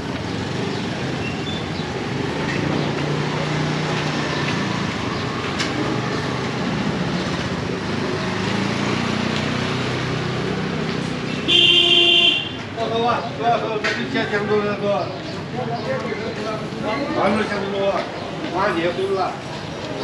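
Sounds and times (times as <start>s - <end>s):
traffic noise: 0.0s - 20.0s
vehicle engine passing close: 0.1s - 11.4s.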